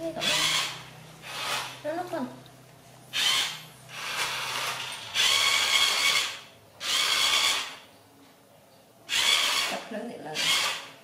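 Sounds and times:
toy car motor whirring: 0:00.2 - 0:01.8, 0:03.1 - 0:07.8, 0:09.1 - 0:09.8, 0:10.4 - 0:10.9.

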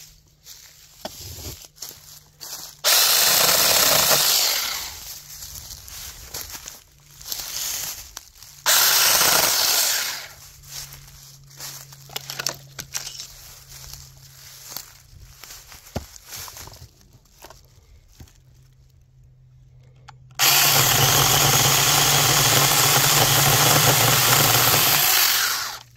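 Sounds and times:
chainsaw cutting branches: 0:02.8 - 0:06.1, 0:07.3 - 0:10.5, 0:20.4 - 0:25.9
quiet steady hum: 0:04.6 - 0:08.7, 0:10.0 - 0:20.4.

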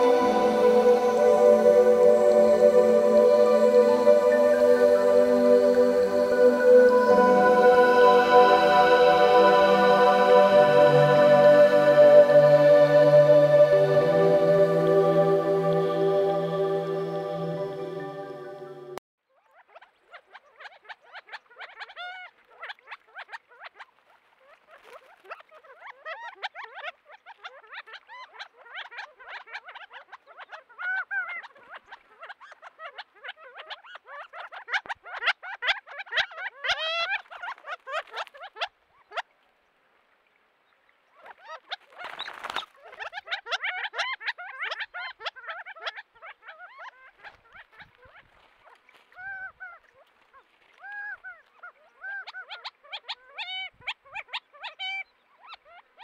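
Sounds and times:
quail calling: 0:28.7 - 0:39.2, 0:41.2 - 0:55.6.

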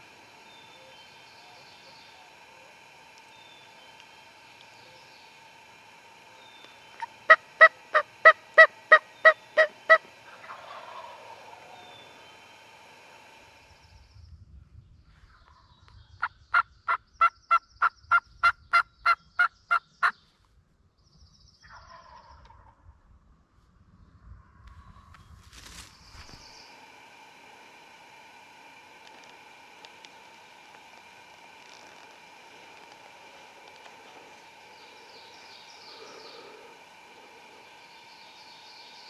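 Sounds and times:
turkey yelping: 0:07.0 - 0:11.8, 0:18.7 - 0:20.1.

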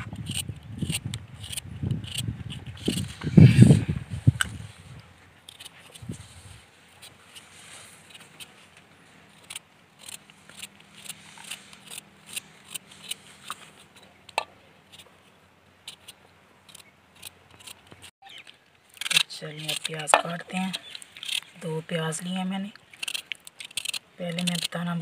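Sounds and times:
knife cutting carrot: 0:00.0 - 0:04.6, 0:09.4 - 0:15.1.

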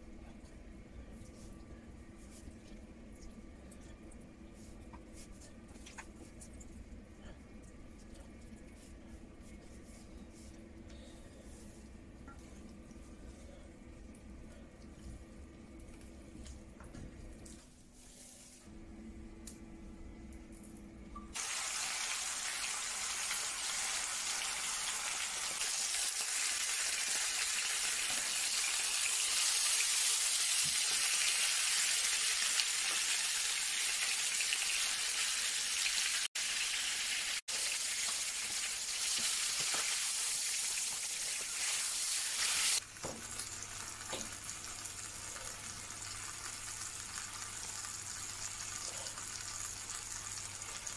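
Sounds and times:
chicken sizzling in oil: 0:21.3 - 0:50.9.

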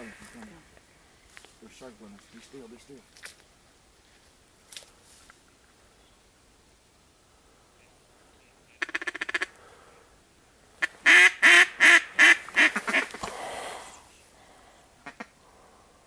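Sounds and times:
duck call quacks: 0:08.7 - 0:09.6, 0:10.8 - 0:13.2, 0:15.0 - 0:15.4.

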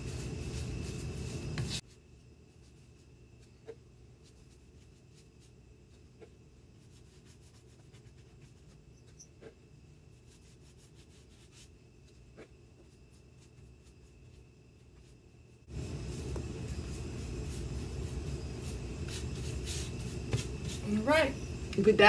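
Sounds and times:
paintbrush strokes on wood: 0:00.0 - 0:09.6, 0:10.2 - 0:21.1.

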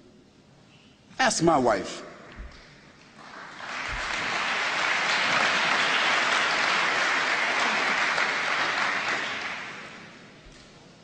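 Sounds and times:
audience applauding: 0:03.0 - 0:10.3.

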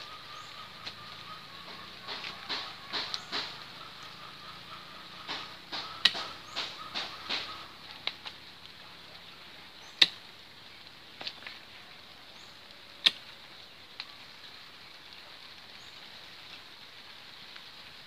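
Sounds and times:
pruning shears snipping branches: 0:00.1 - 0:08.4, 0:09.9 - 0:10.2.

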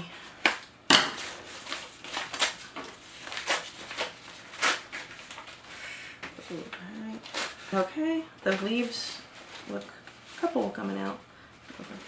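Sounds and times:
paper wrapping snapping: 0:00.4 - 0:05.7
paper crinkling and rustling: 0:01.2 - 0:12.0.

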